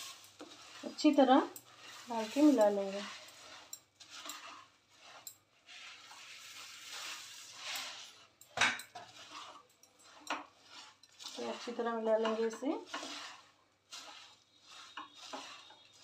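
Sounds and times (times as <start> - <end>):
puffed rice rustling: 0.0 - 16.0.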